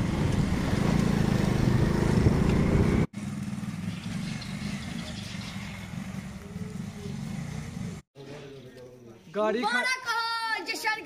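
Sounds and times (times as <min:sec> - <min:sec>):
small motorcycle engine running: 0:00.4 - 0:08.0.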